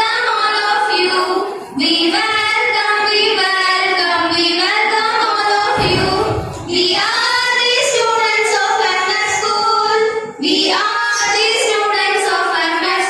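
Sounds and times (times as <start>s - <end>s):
girls singing: 4.7s - 13.0s.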